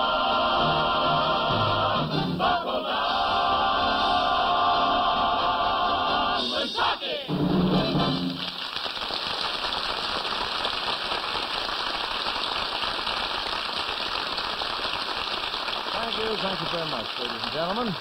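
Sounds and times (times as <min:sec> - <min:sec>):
orchestra final chord: 0:07.3 - 0:08.6
audience applauding: 0:07.8 - 0:18.0.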